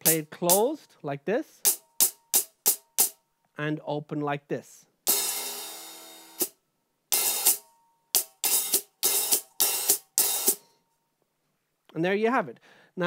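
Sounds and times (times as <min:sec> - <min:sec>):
short open hi-hat strokes: 0:00.0 - 0:00.7, 0:05.1 - 0:06.5, 0:07.1 - 0:10.7
hi-hat closing chick: 0:00.0 - 0:00.8, 0:01.6 - 0:03.2, 0:07.1 - 0:10.7
open hi-hat ringing: 0:00.0 - 0:00.8, 0:01.6 - 0:03.2, 0:05.1 - 0:10.9.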